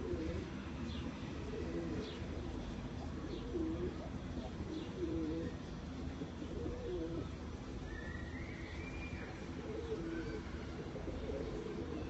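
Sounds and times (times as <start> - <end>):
pigeons cooing: 0.0 - 0.5, 1.4 - 2.2, 3.0 - 5.6, 6.3 - 7.3, 9.6 - 12.0.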